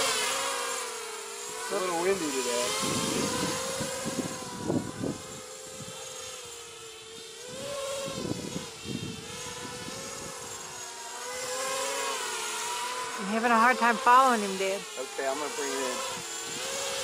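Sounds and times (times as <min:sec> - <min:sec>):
drone motors whining: 0:00.0 - 0:17.0
wind buffeting microphone: 0:02.6 - 0:06.0, 0:07.5 - 0:10.6.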